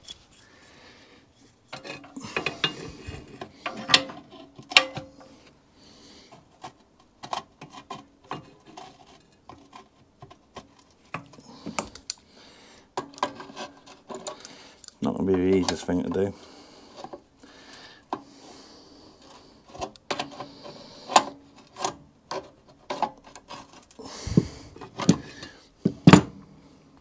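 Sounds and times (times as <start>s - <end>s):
metal tools clinking and scraping: 0.0s - 0.6s, 1.4s - 5.4s.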